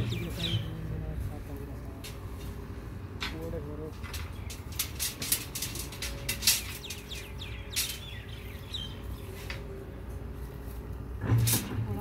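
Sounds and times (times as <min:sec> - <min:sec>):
bird chirping: 0:00.0 - 0:00.9, 0:06.2 - 0:09.5
metallic clicks of steel rebar: 0:04.0 - 0:07.0.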